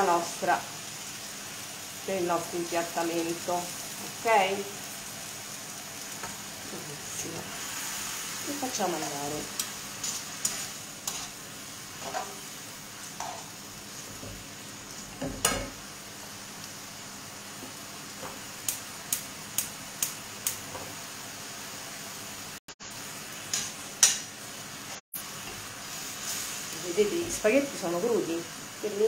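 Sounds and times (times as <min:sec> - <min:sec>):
pasta sizzling in a frying pan: 0:00.0 - 0:29.0
metal tongs clicking on pan: 0:18.6 - 0:20.6, 0:23.5 - 0:24.3.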